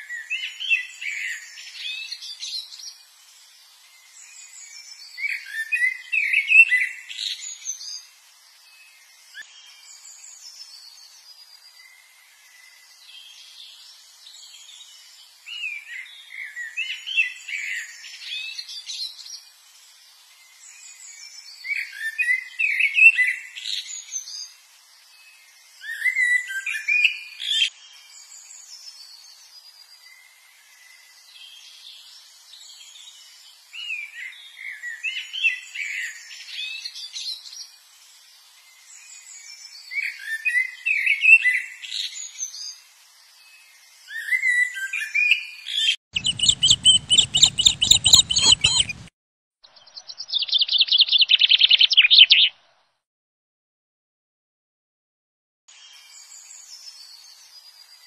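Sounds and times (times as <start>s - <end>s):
songbirds twittering: 43.6s - 49.1s, 49.7s - 52.6s.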